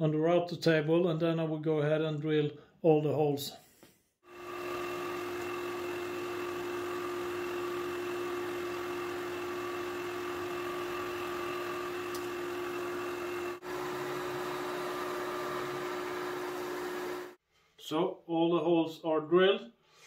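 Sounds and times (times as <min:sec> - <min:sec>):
drill press and dust extractor droning: 0:04.3 - 0:17.4.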